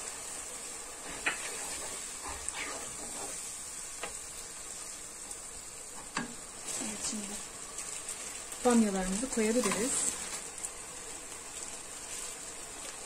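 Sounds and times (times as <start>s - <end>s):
wooden spoon stirring: 0.0s - 3.6s
stew sizzling in a pot: 0.0s - 13.0s.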